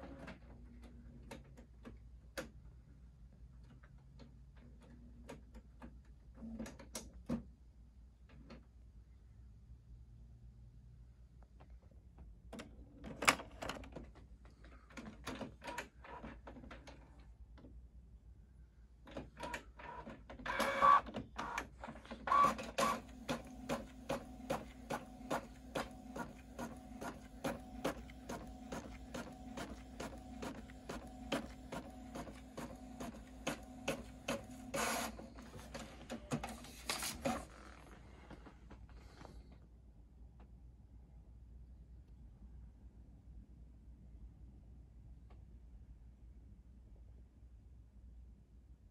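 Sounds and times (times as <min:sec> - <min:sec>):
printer clicking and whirring: 0:19.1 - 0:37.5.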